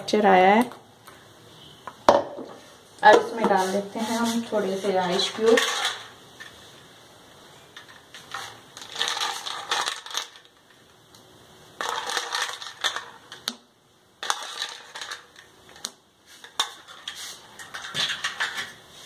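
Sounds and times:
ice cubes clattering: 8.2 - 10.6, 11.8 - 13.4, 14.2 - 15.5.

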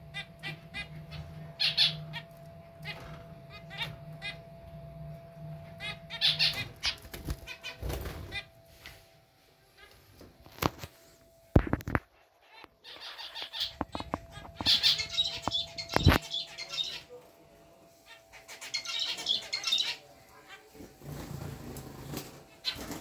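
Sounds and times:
zebra finches buzzy chatter: 0.1 - 4.5, 5.6 - 8.6, 11.6 - 17.3, 17.9 - 23.0.

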